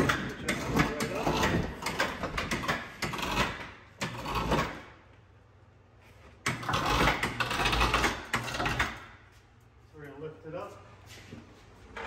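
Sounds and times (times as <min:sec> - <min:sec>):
metal parts knocking and scraping: 0:00.0 - 0:04.9, 0:06.4 - 0:09.1.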